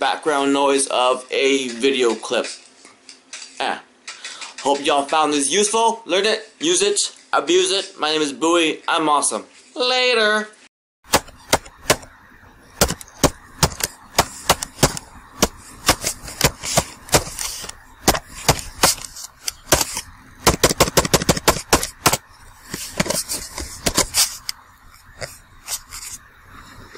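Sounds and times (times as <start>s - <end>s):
computer keyboard typing: 12.8s - 23.2s.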